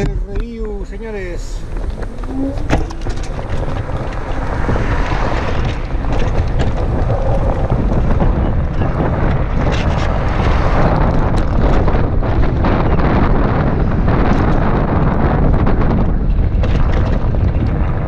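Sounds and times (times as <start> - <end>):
wind buffeting microphone: 0.0 - 18.0
small clicks and rattles: 1.7 - 10.1.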